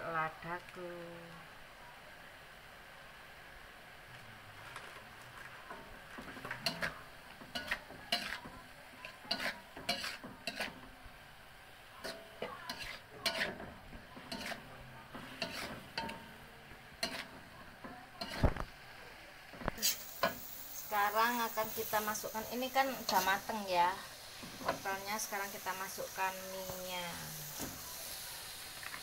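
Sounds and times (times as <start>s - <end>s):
low sizzle: 0.0s - 29.0s
metal spatula scraping a wok: 6.2s - 10.9s, 12.0s - 16.4s, 17.0s - 18.5s, 19.8s - 26.3s.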